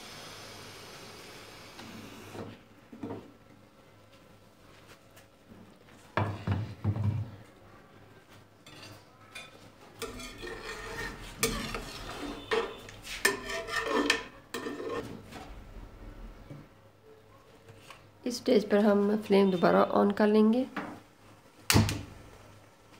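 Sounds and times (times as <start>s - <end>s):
spoon stirring thick curry: 8.6s - 15.2s.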